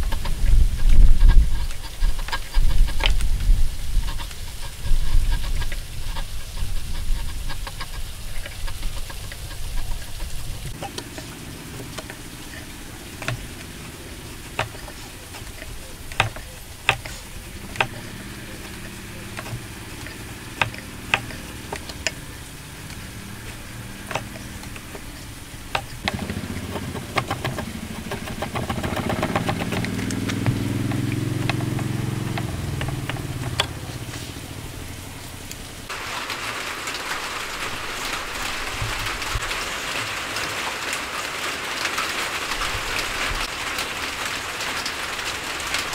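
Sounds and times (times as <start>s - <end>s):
engine in background: 0.0s - 45.9s
steady hiss: 0.0s - 45.9s
chisel paring wood: 4.1s - 34.1s.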